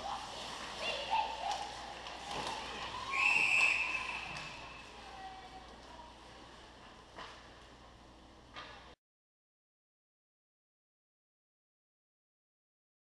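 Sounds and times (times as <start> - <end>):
referee's whistle blast: 3.1 - 4.7.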